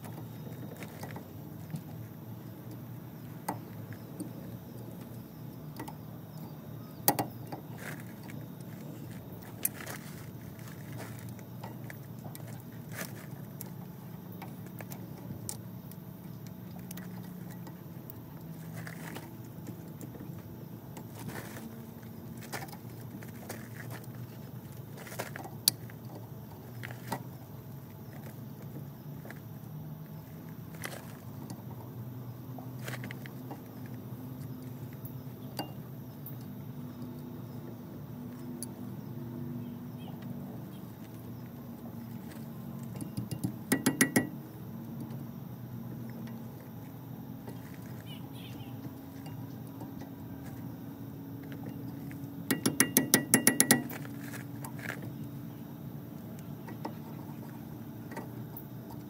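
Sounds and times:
hand tools clinking on steel: 0:52.5 - 0:54.4.

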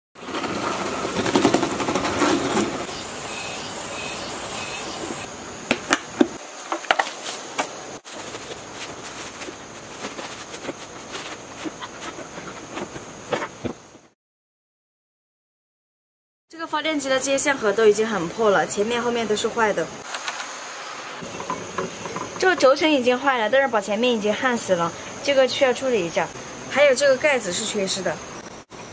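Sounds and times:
plastic sheeting crinkling: 0:07.0 - 0:13.0.

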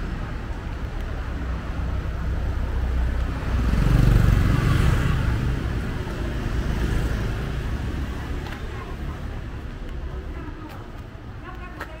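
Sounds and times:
traffic rumble: 0:00.0 - 0:12.0
vehicle engine passing: 0:02.8 - 0:09.4.

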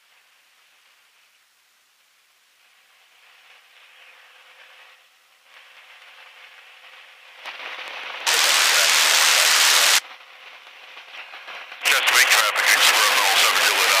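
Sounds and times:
faint radio static hiss: 0:00.0 - 0:14.0
loud rush of static: 0:07.0 - 0:10.0, 0:11.5 - 0:14.0.

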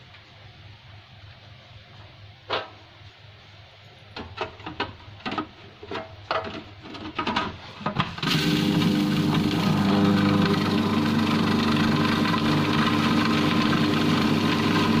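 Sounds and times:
food processor motor running: 0:08.2 - 0:15.0.

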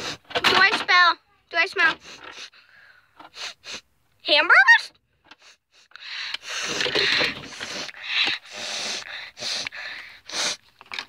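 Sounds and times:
person sniffing: 0:00.0 - 0:00.3, 0:02.0 - 0:03.9, 0:05.4 - 0:10.8.

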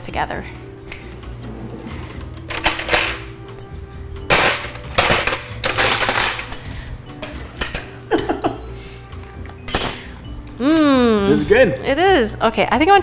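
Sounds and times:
cutlery clattering in a drawer: 0:02.5 - 0:07.9.

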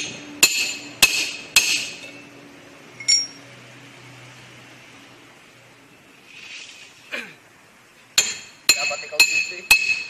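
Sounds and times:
hammer striking steel hub: 0:00.0 - 0:02.2, 0:03.0 - 0:03.4, 0:08.2 - 0:10.0
light metal clink: 0:03.0 - 0:03.4.

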